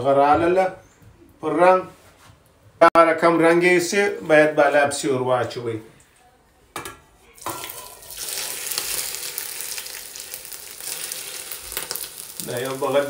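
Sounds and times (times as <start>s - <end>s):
hot oil sizzling on rice: 7.4s - 13.0s.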